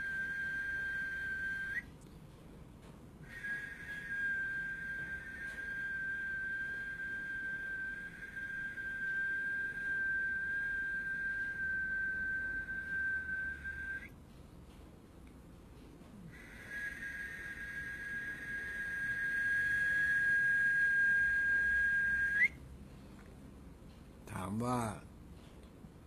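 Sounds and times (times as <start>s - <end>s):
high whistled note: 0.0s - 1.9s, 3.2s - 14.1s, 16.3s - 22.6s.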